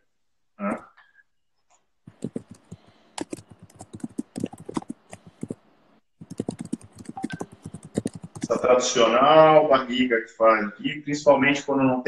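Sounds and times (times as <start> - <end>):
marker tapping on whiteboard: 2.1 - 5.6, 6.2 - 8.6.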